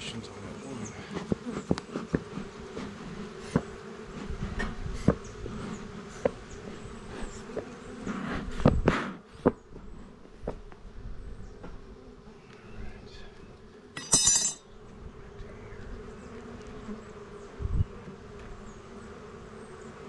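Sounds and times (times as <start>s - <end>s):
honeybees buzzing: 0.0s - 14.0s, 14.7s - 20.0s.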